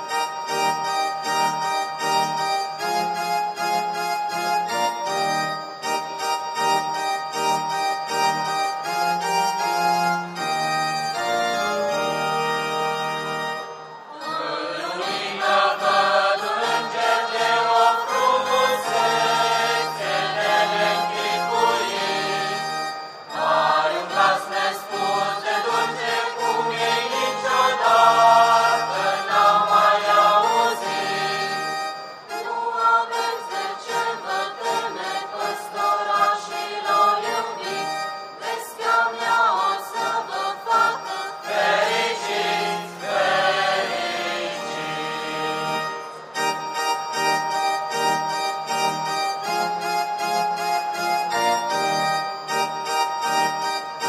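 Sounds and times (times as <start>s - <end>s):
organ-toned keyboard: 0.0s - 54.0s
mixed choir singing: 14.1s - 22.7s, 23.3s - 31.7s, 32.4s - 45.6s.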